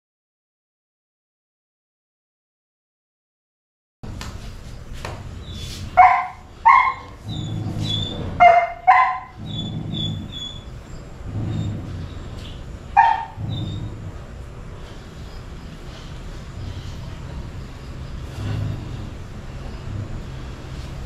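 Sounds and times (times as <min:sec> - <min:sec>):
dog barking: 0:06.0 - 0:07.2, 0:08.4 - 0:09.4, 0:12.9 - 0:13.4.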